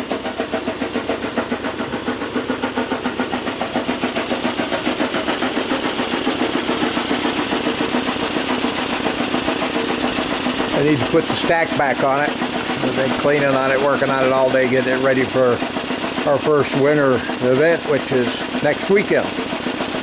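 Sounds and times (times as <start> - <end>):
steam engine pulsing: 0.0 - 20.0.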